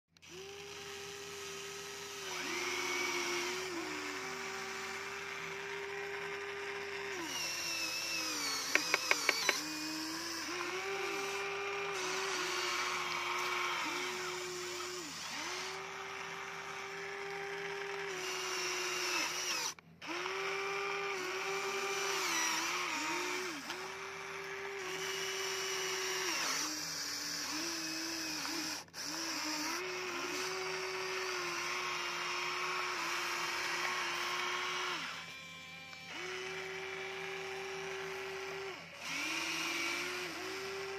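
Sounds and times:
toy excavator motors whining: 0.1 - 40.9
sharp clicks: 7.3 - 9.9.

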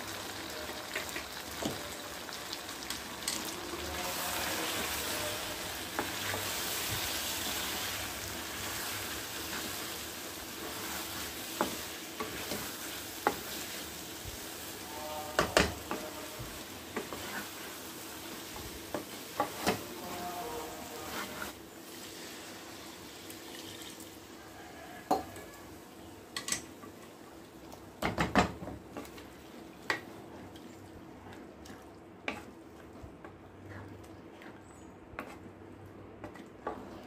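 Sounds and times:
frying sizzle: 0.0 - 30.6
wooden spatula scraping pan: 3.7 - 21.6, 35.2 - 35.5, 36.2 - 37.0.

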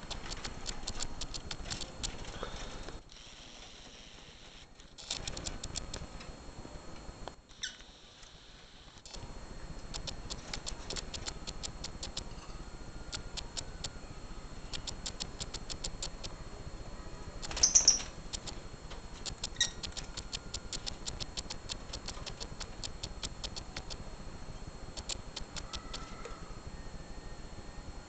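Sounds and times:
birds chirping: 17.5 - 18.2.

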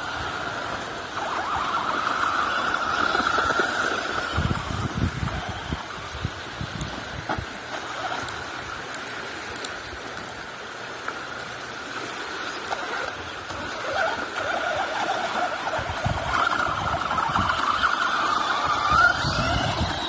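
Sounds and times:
electric motor whining: 0.0 - 6.1, 12.8 - 20.0
waves washing on shore: 0.0 - 20.0.

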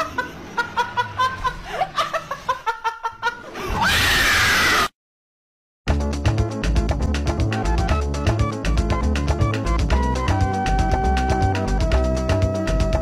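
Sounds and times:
loud harsh scream: 3.7 - 4.9.

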